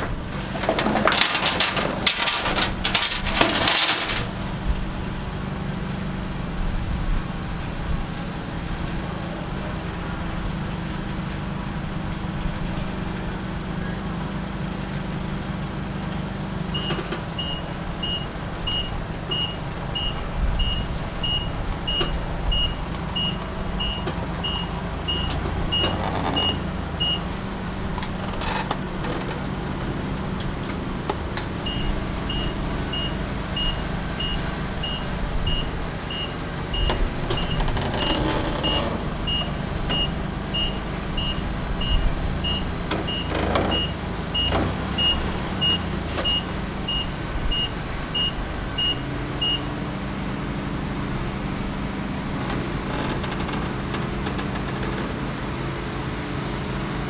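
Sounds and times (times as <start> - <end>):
clunks: 0.0 - 4.4, 16.1 - 49.6, 52.3 - 55.4
forklift engine running: 0.0 - 57.0
backup alarm beeping: 16.7 - 27.2, 31.6 - 37.6, 38.6 - 49.7.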